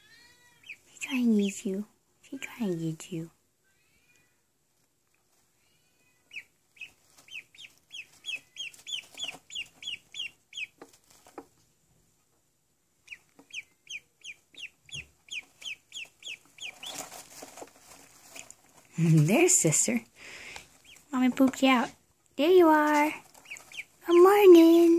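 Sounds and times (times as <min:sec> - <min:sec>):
duckling peeping: 0:00.5 - 0:01.5, 0:06.2 - 0:11.4, 0:13.0 - 0:19.2, 0:19.8 - 0:24.9
rustling in wood shavings: 0:04.7 - 0:11.6, 0:13.2 - 0:24.9.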